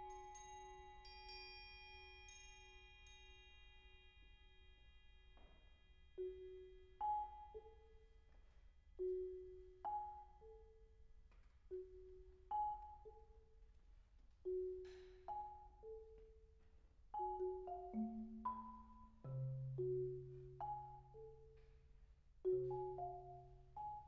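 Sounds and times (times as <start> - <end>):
marimba notes ringing: 17.2 - 21.4.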